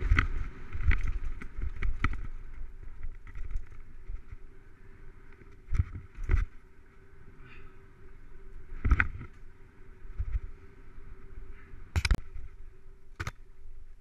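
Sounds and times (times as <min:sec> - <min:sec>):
bike knocking and rattling: 0:00.0 - 0:06.9, 0:08.6 - 0:10.7
mountain bike tyre noise: 0:00.0 - 0:14.0.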